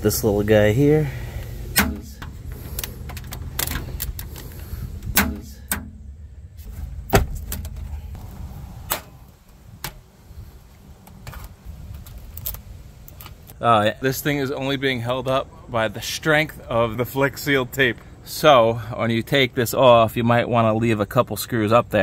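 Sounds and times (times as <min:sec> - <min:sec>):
parts clicking and rattling: 0:01.7 - 0:06.1, 0:06.7 - 0:08.3.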